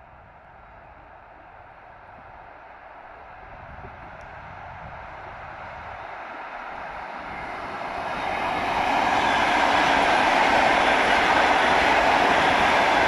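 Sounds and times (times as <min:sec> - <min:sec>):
electric train passing on rails: 0:00.0 - 0:13.0.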